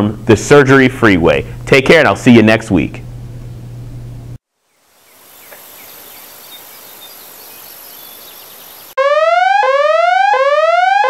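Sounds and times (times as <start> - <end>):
soft chirps: 4.7 - 9.0.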